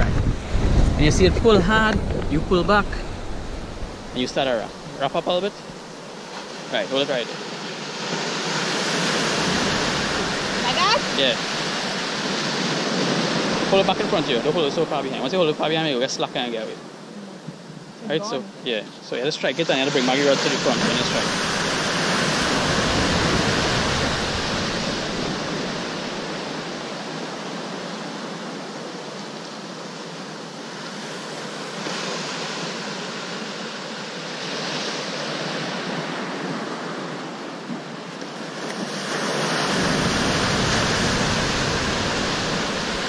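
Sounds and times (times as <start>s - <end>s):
wind rumbling on microphone: 0.0s - 6.0s, 8.1s - 15.5s, 20.8s - 26.9s, 35.1s - 43.0s
ocean waves breaking: 0.0s - 43.0s.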